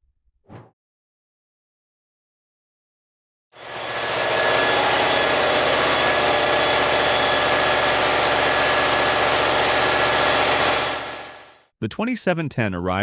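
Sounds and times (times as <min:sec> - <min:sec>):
diesel engine running: 0:03.6 - 0:11.6.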